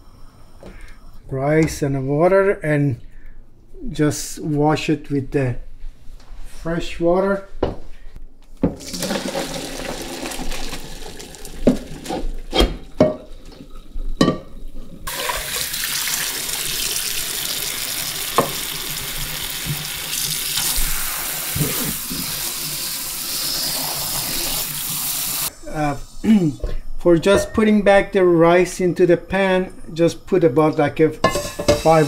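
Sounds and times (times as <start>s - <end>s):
water draining into sink: 8.8s - 12.5s, 15.1s - 20.8s
kitchen tap running: 8.8s - 14.2s, 15.1s - 25.5s
pot knocking: 31.2s - 32.0s.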